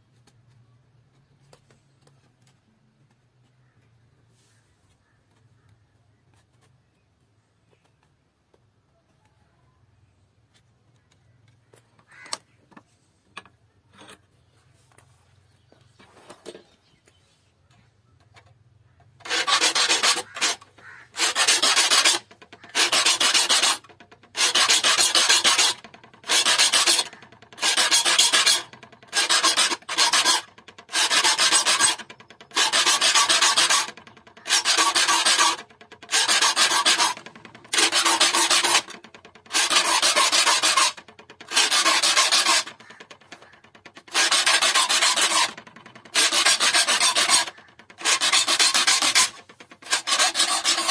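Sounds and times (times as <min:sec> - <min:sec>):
file rasping on saw teeth: 0:19.2 - 0:50.9.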